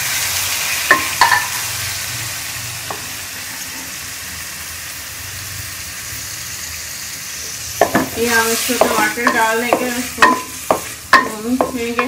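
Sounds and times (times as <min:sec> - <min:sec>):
tomatoes sizzling in a pan: 0:00.0 - 0:12.0
spatula knocking on pan: 0:07.8 - 0:12.0.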